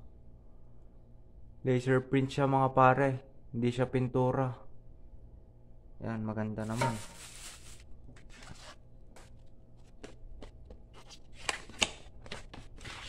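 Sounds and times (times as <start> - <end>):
plastic bag and packaging rustling: 6.6 - 8.8.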